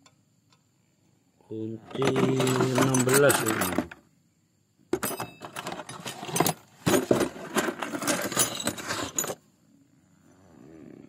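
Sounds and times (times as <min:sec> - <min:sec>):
wrenches clinking together: 0:01.9 - 0:04.0, 0:07.6 - 0:09.4.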